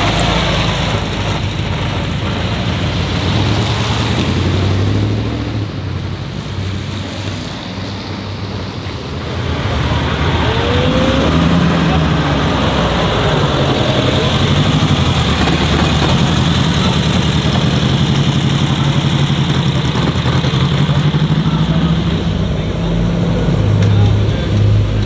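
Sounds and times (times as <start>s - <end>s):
car engine at low revs: 8.7s - 25.0s.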